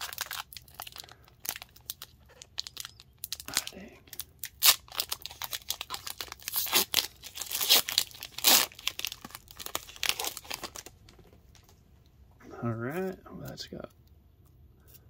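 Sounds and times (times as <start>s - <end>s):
foil wrapper tearing and crinkling: 0.0s - 11.0s.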